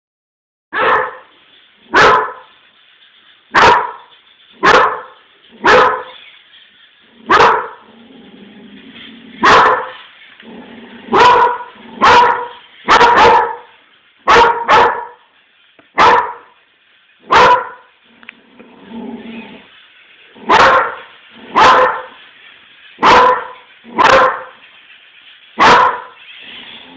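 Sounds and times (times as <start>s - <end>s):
dog barking: 0.7s - 1.3s, 1.9s - 2.5s, 3.5s - 6.2s, 7.3s - 7.8s, 9.4s - 10.0s, 11.1s - 13.7s, 14.3s - 15.2s, 16.0s - 16.5s, 17.3s - 17.9s, 20.5s - 22.2s, 23.0s - 24.6s, 25.6s - 26.2s.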